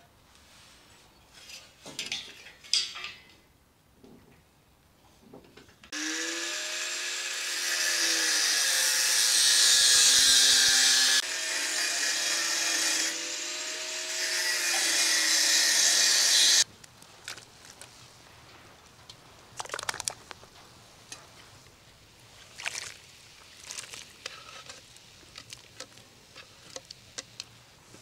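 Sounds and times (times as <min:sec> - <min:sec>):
angle grinder cutting steel: 0:05.9 - 0:16.7.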